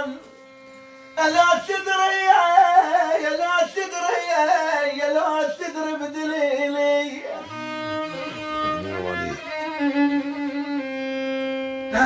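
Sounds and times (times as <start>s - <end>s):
solo violin folk melody: 0.0s - 3.5s, 6.3s - 12.0s.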